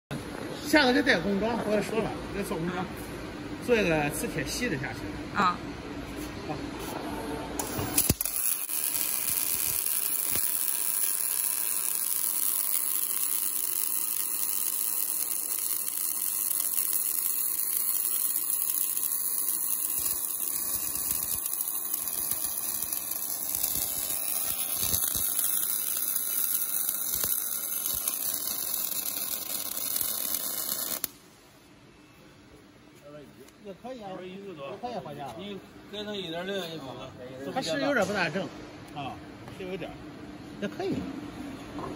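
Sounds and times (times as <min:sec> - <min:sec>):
welding arc hissing and crackling: 0:07.6 - 0:31.3.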